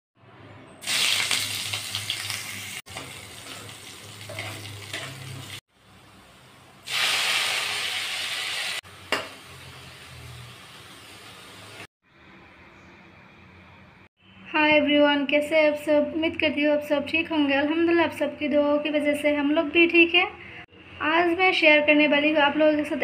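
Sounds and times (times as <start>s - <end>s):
hot oil sizzling: 0.8s - 11.9s.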